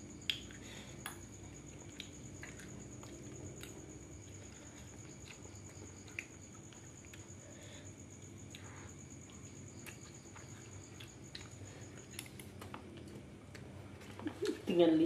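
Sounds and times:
chewing: 0:01.4 - 0:07.4, 0:08.4 - 0:14.7.

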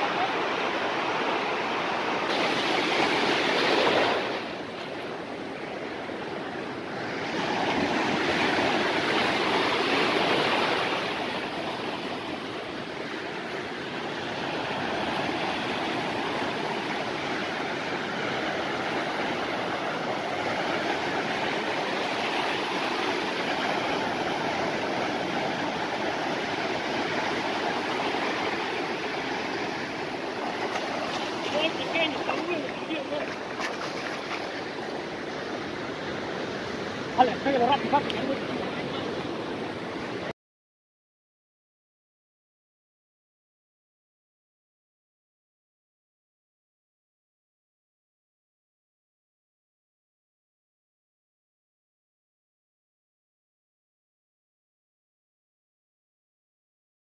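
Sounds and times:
ocean surf breaking: 0:00.0 - 0:40.3.

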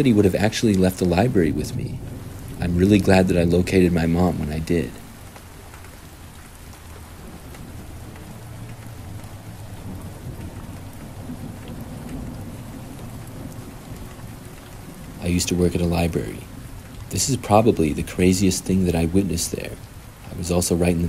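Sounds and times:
low thunder rumbling: 0:00.0 - 0:21.0
steady rain: 0:00.0 - 0:21.0.

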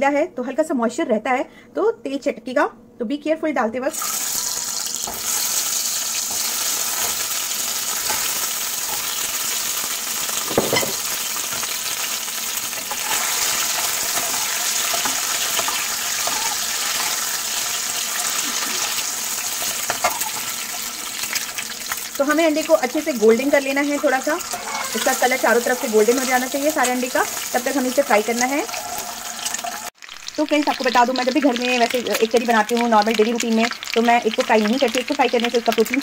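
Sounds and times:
eggs sizzling in hot oil: 0:03.9 - 0:36.0
metal ladle knocking pan: 0:10.4 - 0:11.7.

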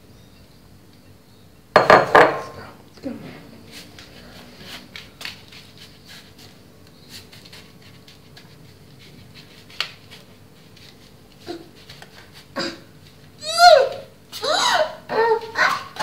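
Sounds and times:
spoon scraping biscuit crumbs: 0:03.7 - 0:12.5.

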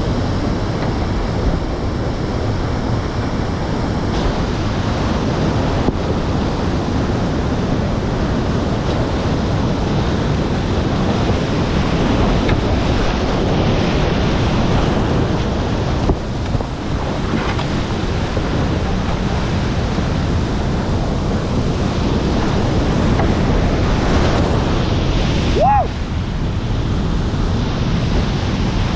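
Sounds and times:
whitewater rushing: 0:00.0 - 0:28.9.

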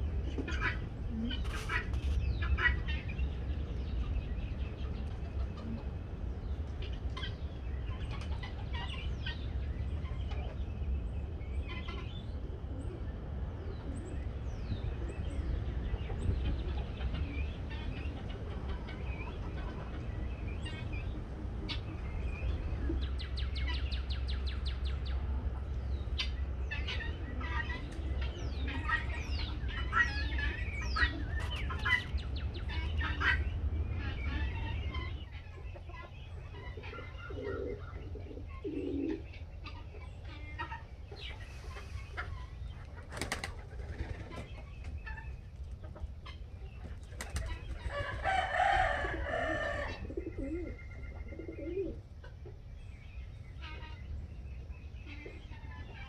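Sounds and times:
birds chirping: 0:00.0 - 0:56.0
bird wing flapping: 0:43.0 - 0:44.5, 0:47.0 - 0:47.6.

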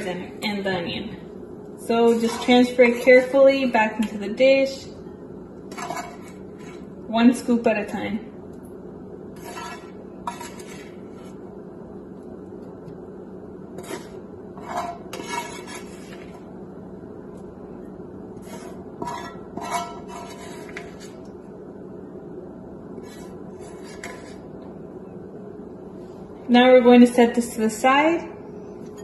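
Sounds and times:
steady low hum: 0:00.0 - 0:29.0
spatula scraping a frying pan: 0:02.0 - 0:03.4, 0:05.7 - 0:07.0, 0:09.3 - 0:11.4, 0:13.7 - 0:16.4, 0:18.4 - 0:21.2, 0:23.0 - 0:24.5.

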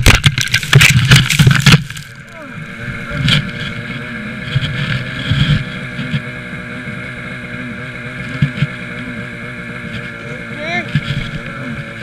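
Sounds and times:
wind and handling knocks on microphone: 0:00.0 - 0:02.0
snowmobile engine idling: 0:00.0 - 0:12.0.

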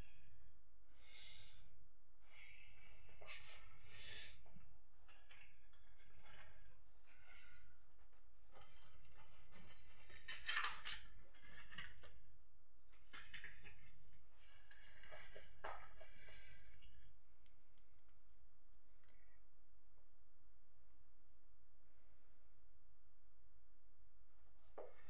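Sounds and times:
rustling and handling noises: 0:05.1 - 0:12.2, 0:12.9 - 0:18.4.

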